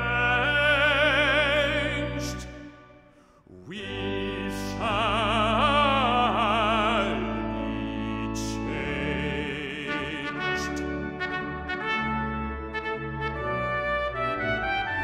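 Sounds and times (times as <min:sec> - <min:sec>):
bass-baritone voice singing: 0:00.0 - 0:02.9, 0:03.5 - 0:12.1.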